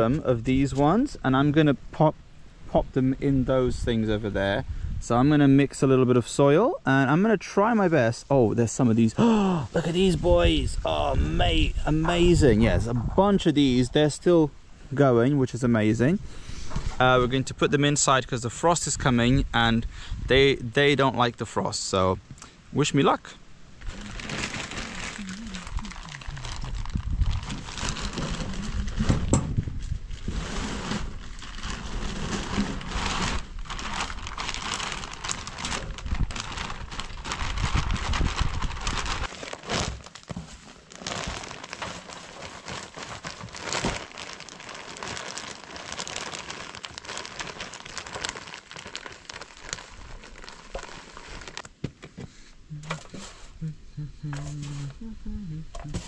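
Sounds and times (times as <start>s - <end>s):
low rumble: 23.8s - 39.3s
hands rustling potting soil: 30.0s - 51.7s.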